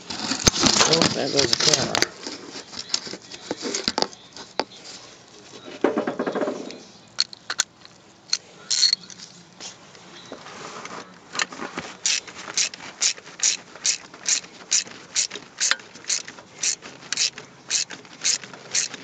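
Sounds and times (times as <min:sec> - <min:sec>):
ratchet wrench clicking: 0:12.1 - 0:19.0.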